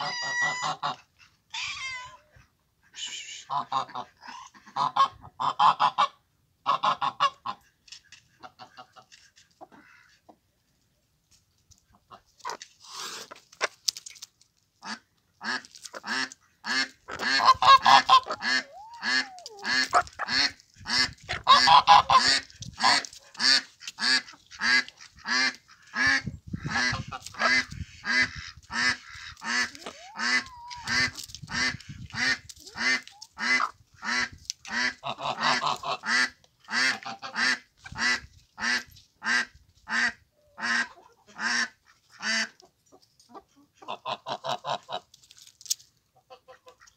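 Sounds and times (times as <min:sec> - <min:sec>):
fowl calling: 0:16.7 - 0:23.1, 0:28.2 - 0:31.2.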